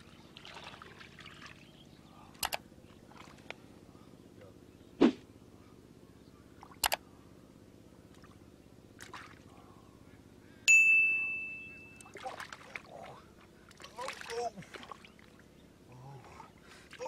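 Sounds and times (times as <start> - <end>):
splashes in shallow water: 0.0 - 1.7, 3.0 - 3.5, 9.0 - 9.5, 12.0 - 15.5.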